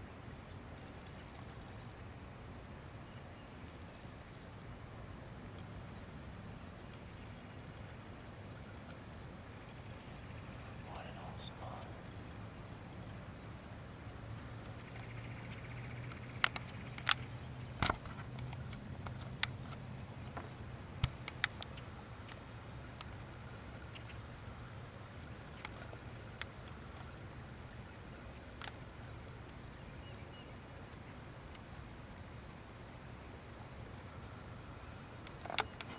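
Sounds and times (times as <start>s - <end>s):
sharp clicks and snaps: 16.1s - 17.2s, 21.0s - 21.8s.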